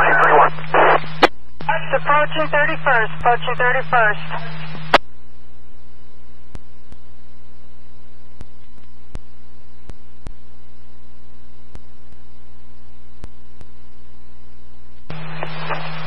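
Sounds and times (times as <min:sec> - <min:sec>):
sharp radio clicks: 0:00.0 - 0:05.1, 0:15.1 - 0:16.0
low radio hum with hiss: 0:00.0 - 0:16.0.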